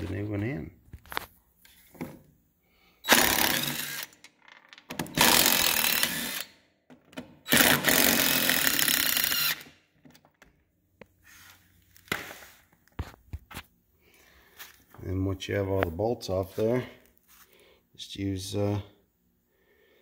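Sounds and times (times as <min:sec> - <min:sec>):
impact wrench zipping off bolts: 0:03.0 - 0:06.6.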